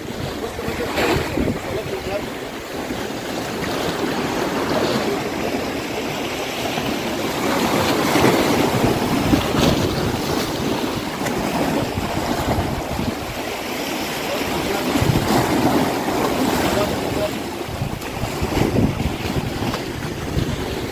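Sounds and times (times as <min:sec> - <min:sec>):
wind buffeting microphone: 0:00.0 - 0:02.6, 0:07.4 - 0:20.9
waves splashing against rocks: 0:00.0 - 0:20.9.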